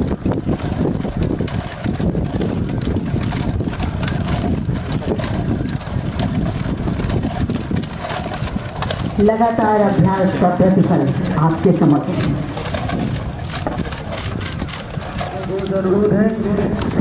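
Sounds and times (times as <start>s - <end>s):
sharp clicks and clacks: 0.0s - 17.0s
wind buffeting microphone: 0.0s - 17.0s.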